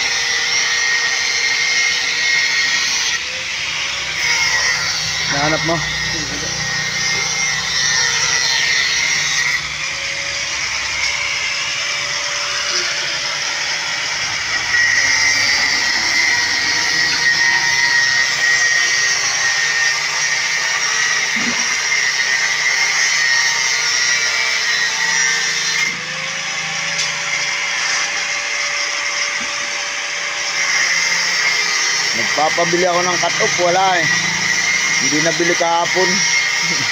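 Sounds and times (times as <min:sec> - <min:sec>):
angle grinder cutting steel: 0:00.0 - 0:36.9.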